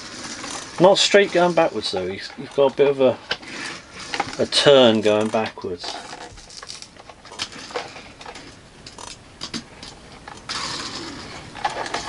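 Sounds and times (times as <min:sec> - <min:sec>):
rushing rattle of rolling toy car: 0:00.0 - 0:02.6, 0:03.3 - 0:04.7, 0:05.8 - 0:12.0
toy cars clicking on hard floor: 0:05.1 - 0:12.0.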